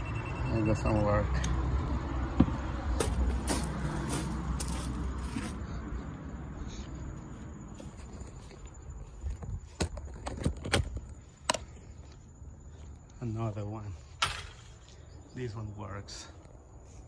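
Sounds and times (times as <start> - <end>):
footsteps: 2.4 - 13.0.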